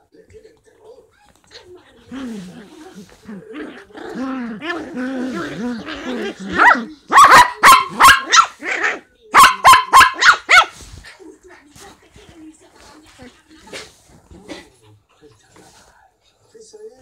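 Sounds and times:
small dogs growling: 1.5 - 7.1, 13.2 - 15.9
small dogs barking: 3.7 - 10.9.

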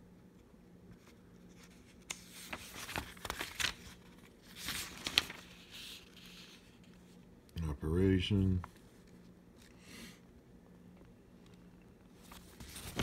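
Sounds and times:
paper pages turning: 0.9 - 7.2, 12.2 - 13.0.

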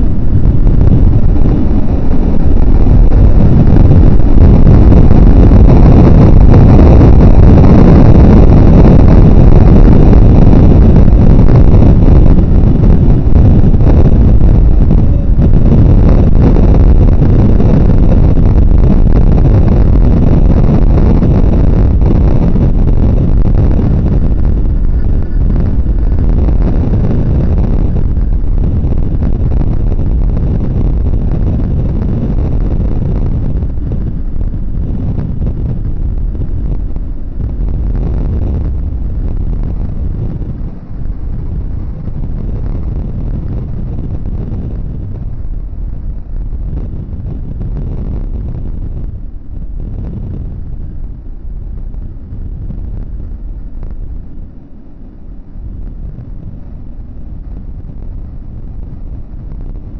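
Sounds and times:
low rumbling noise: 0.0 - 59.9.

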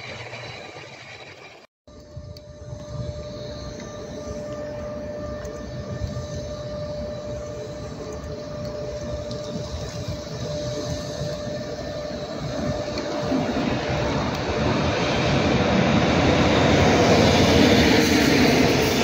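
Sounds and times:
electric train approaching: 0.0 - 19.0.

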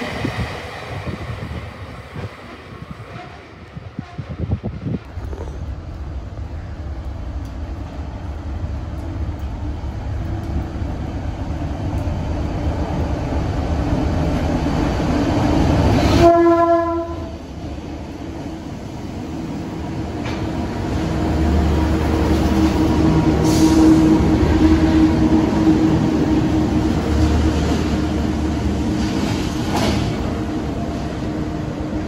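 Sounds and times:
locomotive engine rumble: 0.0 - 32.0
locomotive horn blast: 16.0 - 17.4.

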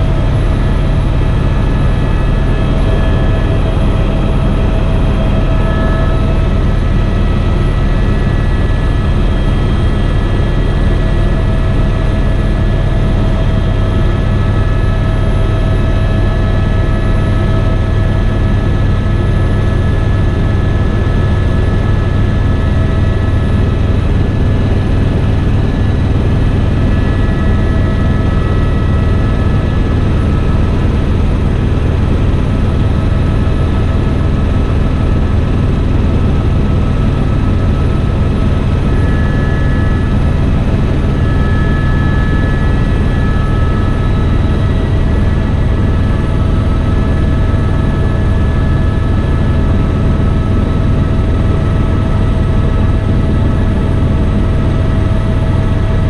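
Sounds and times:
helicopter rotor and engine drone: 0.0 - 56.0
faint whining tones: 0.1 - 10.7, 37.6 - 47.8.

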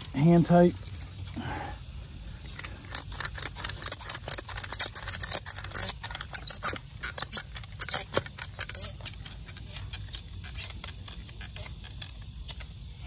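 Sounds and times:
ratchet strap clicking: 2.4 - 12.8.

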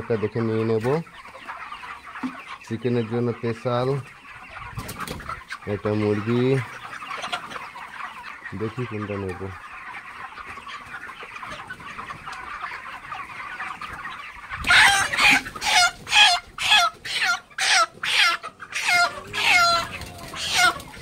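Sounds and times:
chickens chattering softly: 0.0 - 21.0
chicken squawking in distress: 14.0 - 21.0.

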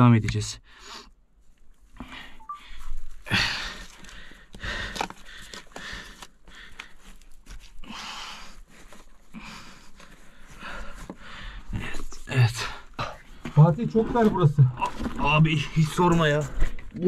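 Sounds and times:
person breathing hard: 2.0 - 7.2, 7.8 - 12.0.

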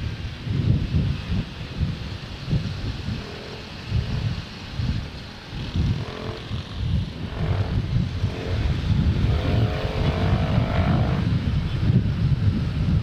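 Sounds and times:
wind buffeting microphone: 0.0 - 13.0
motorcycle engine: 5.5 - 11.3.

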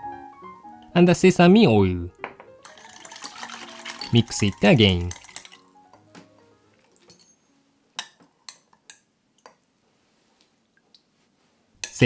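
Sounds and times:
soft background music: 0.0 - 8.9
metal spoon clinking on glass bowl: 7.0 - 9.5.

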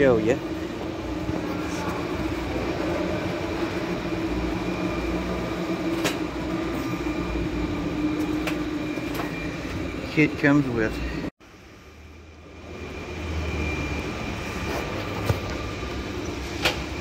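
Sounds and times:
mechanical drone: 0.0 - 17.0.

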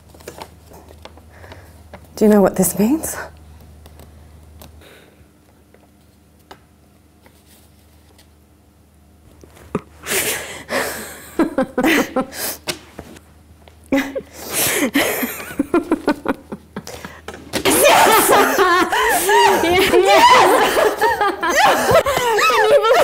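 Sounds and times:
women laughing excitedly: 10.7 - 12.4, 13.9 - 23.0.

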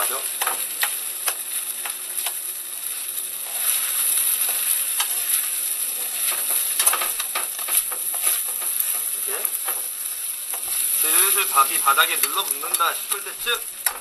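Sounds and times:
rice sizzling in a pan: 0.0 - 14.0
spatula scraping a pan: 0.4 - 13.0.

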